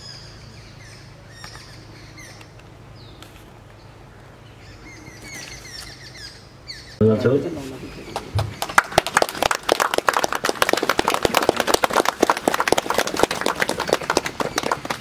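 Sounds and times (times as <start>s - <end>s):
people clapping: 8.1s - 15.0s.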